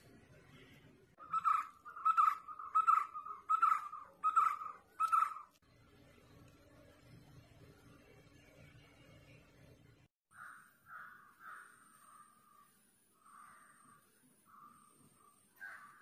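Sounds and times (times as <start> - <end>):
animal calling: 1.2 - 5.6.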